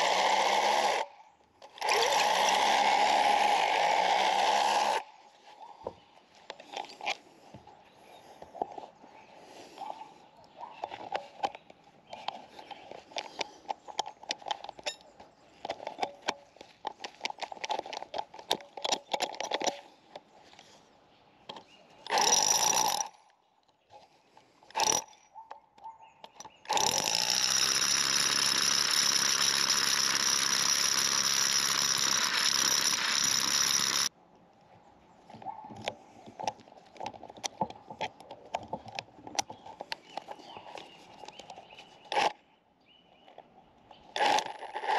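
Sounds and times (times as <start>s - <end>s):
rotary hammer drill running: 0.0s - 1.1s, 1.7s - 5.0s, 22.1s - 23.2s, 24.7s - 25.2s, 26.4s - 34.1s, 44.2s - 44.9s
handling clicks and scuffs: 35.2s - 42.4s.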